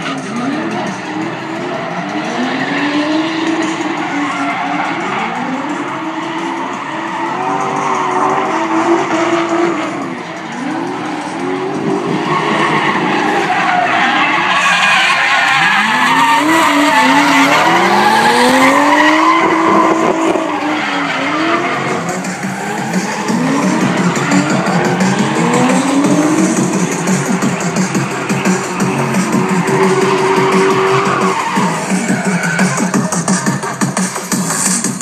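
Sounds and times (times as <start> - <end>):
tyres screeching: 0.0 - 34.9
car engines revving: 0.0 - 35.0.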